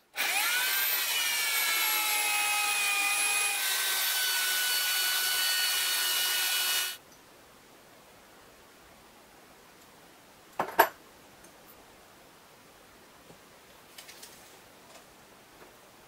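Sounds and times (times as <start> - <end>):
electric drill boring through metal: 0.1 - 7.0.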